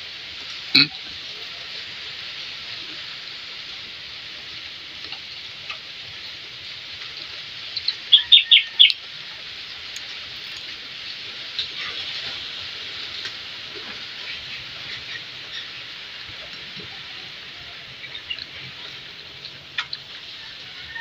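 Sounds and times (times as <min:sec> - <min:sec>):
steady high hiss: 0:00.0 - 0:21.0
bird chirping: 0:07.8 - 0:09.0.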